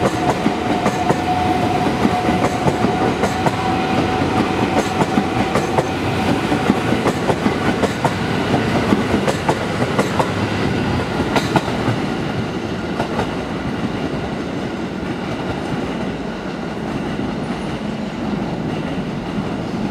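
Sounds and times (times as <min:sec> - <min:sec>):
train wheels clicking over rail joints: 0:00.0 - 0:13.4
train rumble: 0:00.0 - 0:19.9.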